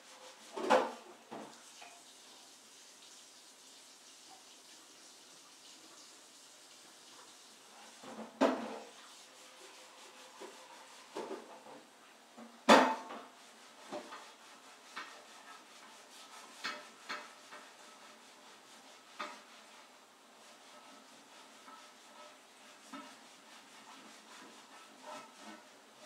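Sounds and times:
dishes knocking and clinking: 0.5s - 1.5s, 8.0s - 8.9s, 12.4s - 13.3s.

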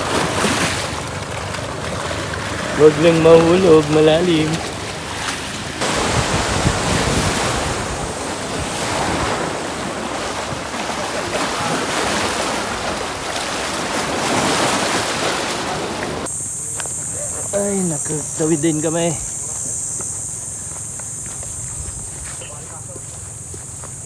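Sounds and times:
waves breaking on rocks: 0.0s - 16.3s
wind buffeting microphone: 1.7s - 16.2s.

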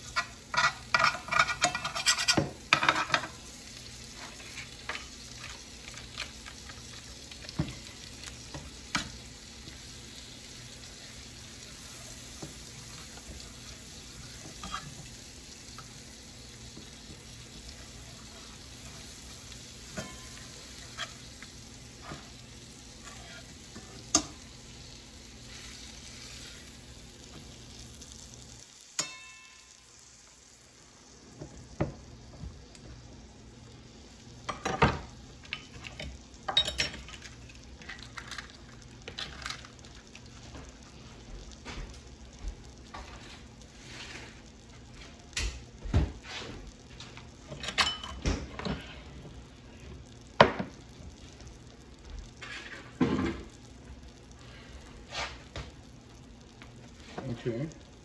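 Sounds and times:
knife scraping and tapping pan: 0.0s - 3.4s, 14.4s - 15.1s, 19.9s - 21.2s
butter sizzling in a skillet: 0.0s - 58.0s.

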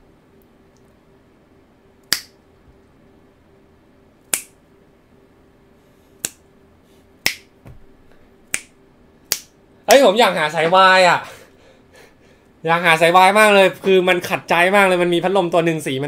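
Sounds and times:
faint steady hum: 0.0s - 16.0s
hand snaps: 2.0s - 2.4s, 4.3s - 4.6s, 6.2s - 6.4s, 7.2s - 7.6s, 8.5s - 9.6s.

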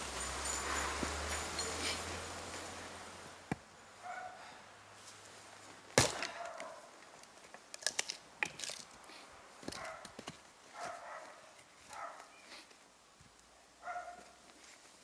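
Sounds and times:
maul splitting wood with crack: 5.9s - 9.0s.

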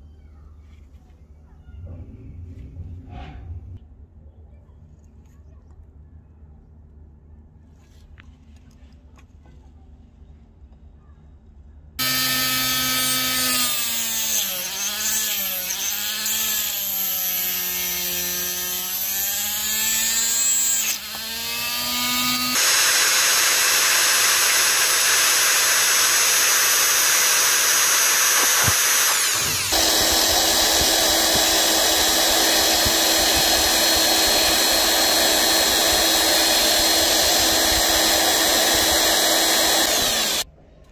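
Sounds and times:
rotary tool cut-off disc whining: 12.0s - 40.4s
steady power tool noise: 12.0s - 40.5s.

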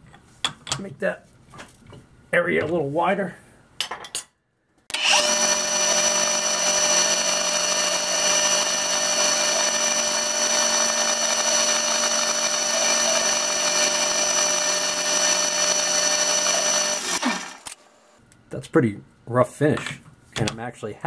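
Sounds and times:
metal lathe whining: 4.9s - 17.8s.

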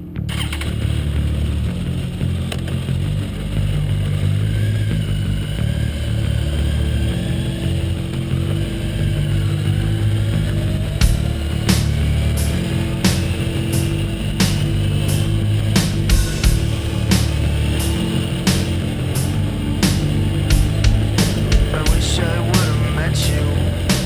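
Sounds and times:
motorcycle engine running: 0.0s - 24.0s.

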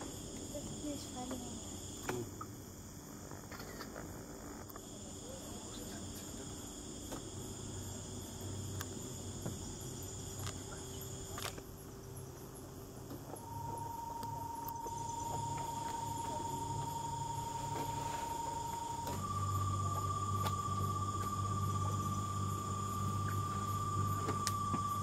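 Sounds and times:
night insects chirring: 0.0s - 25.0s
low rumble: 13.4s - 25.0s.

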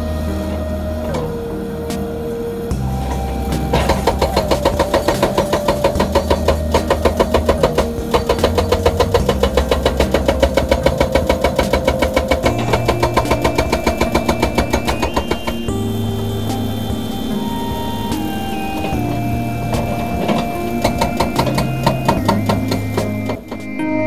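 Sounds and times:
diesel engine running: 0.0s - 23.8s
hydraulic breaker hammering rock: 3.6s - 15.8s.

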